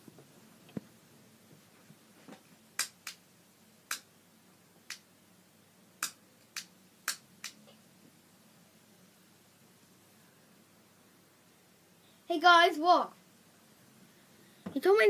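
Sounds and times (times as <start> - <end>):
sharp clicks: 6.0 - 7.8.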